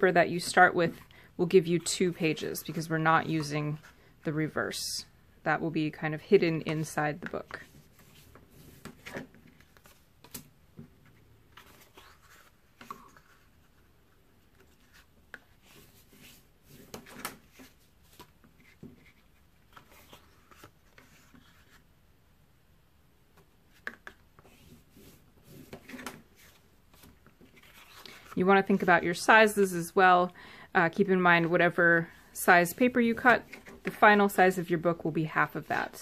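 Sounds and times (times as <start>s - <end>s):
paper rubbing and handling: 11.0s - 21.9s, 23.8s - 29.5s.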